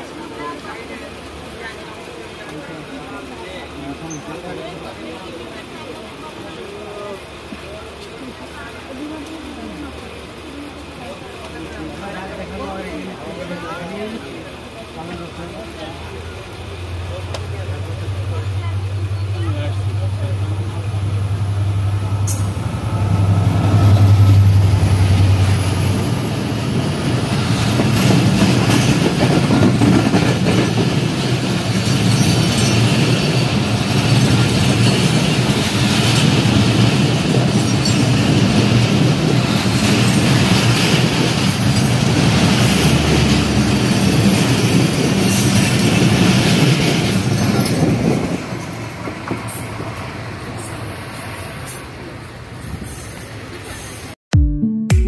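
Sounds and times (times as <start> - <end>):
train wheels rumbling on rail: 0.0 - 54.1
locomotive engine drone: 14.3 - 28.4.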